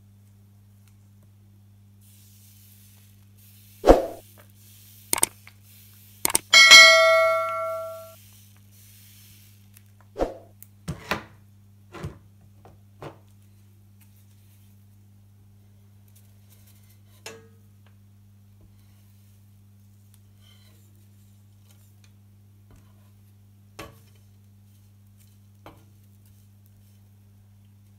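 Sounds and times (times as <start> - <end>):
metallic ding ringing: 6.3 - 8.1.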